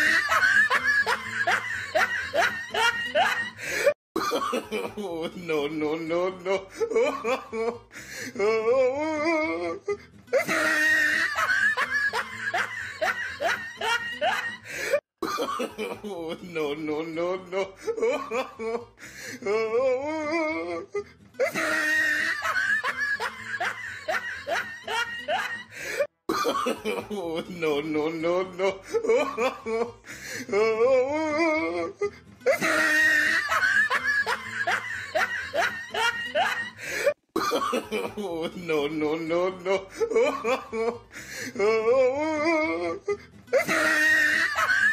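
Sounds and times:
music: 0:00.0 - 0:03.9, 0:04.9 - 0:15.0, 0:15.9 - 0:37.1, 0:38.1 - 0:44.9
laughter: 0:00.0 - 0:05.7, 0:06.4 - 0:07.9, 0:09.6 - 0:18.9, 0:20.4 - 0:27.8, 0:28.6 - 0:30.1, 0:31.3 - 0:38.9, 0:39.6 - 0:41.1, 0:42.4 - 0:44.9
comedy background music: 0:30.6 - 0:36.6, 0:41.7 - 0:44.9.

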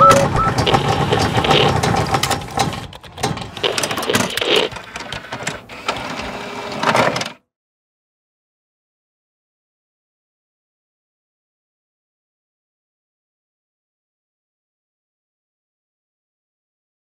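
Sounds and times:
rapid mechanical clicking and whirring: 0:00.0 - 0:07.4.

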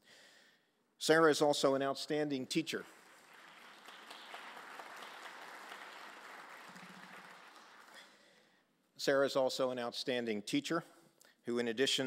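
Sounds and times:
faint audience applause: 0:02.9 - 0:08.4.

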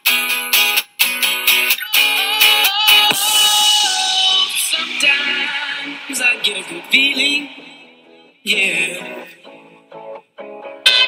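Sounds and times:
dance song playing: 0:01.7 - 0:09.6.

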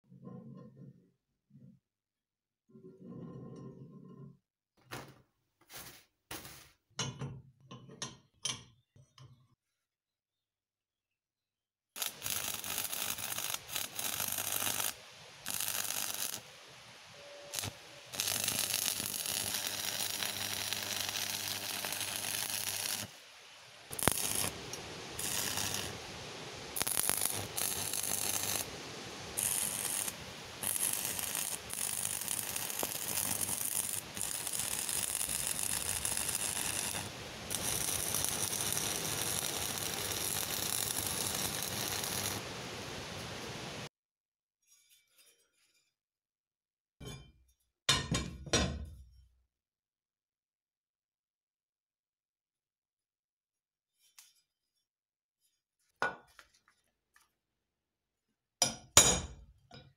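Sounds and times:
arc welding crackling hiss: 0:12.0 - 0:43.9.

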